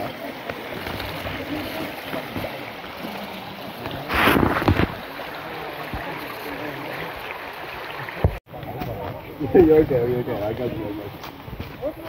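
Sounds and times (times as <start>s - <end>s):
forest stream rushing: 0.0s - 8.4s
wind noise on microphone: 4.1s - 5.1s.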